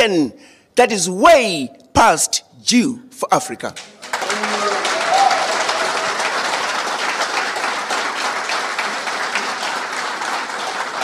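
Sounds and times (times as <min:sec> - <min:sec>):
audience applauding: 0:03.8 - 0:11.0.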